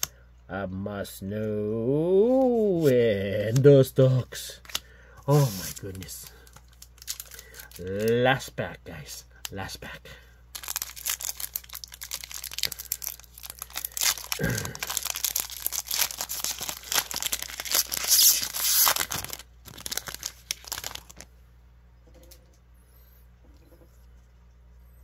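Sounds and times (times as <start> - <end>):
cards rustling: 2.2 - 8.3, 10.5 - 21.3
foil wrapper crinkling and tearing: 4.6 - 8.4, 10.5 - 21.3.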